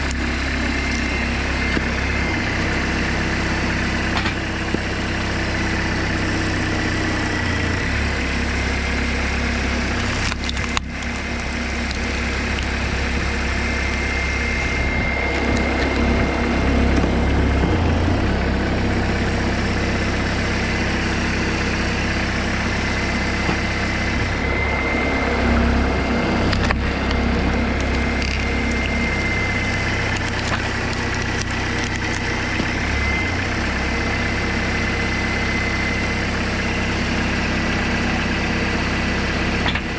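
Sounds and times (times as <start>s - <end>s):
wood cracking and splitting: 0.0s - 16.2s, 26.4s - 34.9s
tractor engine running: 0.0s - 39.9s.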